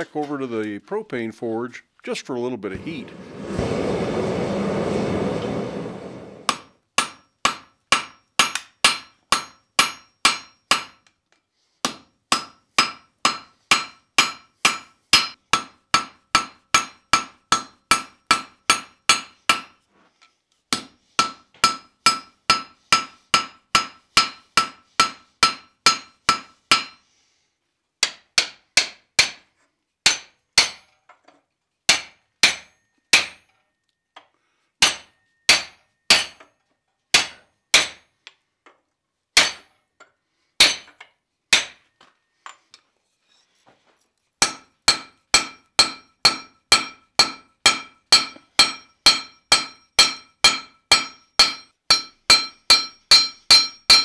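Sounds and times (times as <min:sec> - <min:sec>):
hammer striking metal on anvil: 0:06.5 - 0:11.0, 0:11.8 - 0:19.8, 0:20.7 - 0:27.0, 0:30.1 - 0:30.8, 0:31.9 - 0:33.6, 0:34.8 - 0:36.5, 0:37.2 - 0:38.0, 0:39.4 - 0:39.7, 0:40.6 - 0:40.9, 0:41.5 - 0:41.8, 0:44.4 - 0:54.0.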